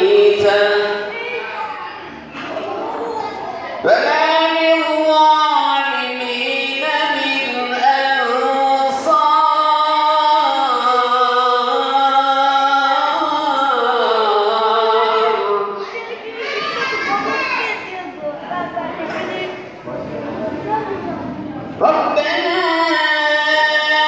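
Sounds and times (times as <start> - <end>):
man singing through pa: 0.0 - 1.1, 3.8 - 15.8, 21.8 - 24.0.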